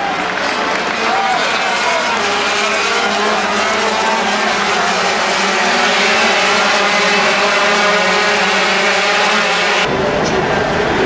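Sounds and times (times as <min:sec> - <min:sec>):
racing motorcycles passing: 0:00.0 - 0:10.7.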